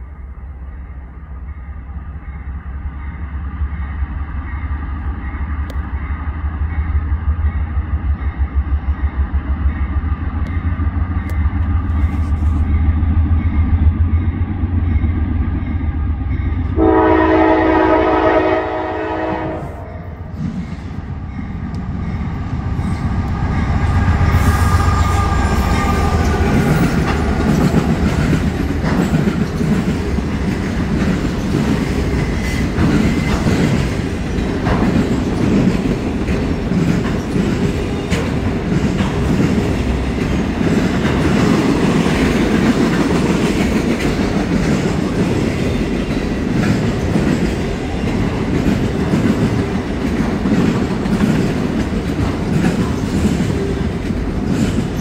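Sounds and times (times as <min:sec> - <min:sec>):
diesel locomotive rumble: 0:00.0 - 0:55.0
train wheels clickety-clack: 0:02.5 - 0:16.8, 0:20.3 - 0:55.0
train horn chord: 0:16.7 - 0:20.3, 0:23.8 - 0:26.9.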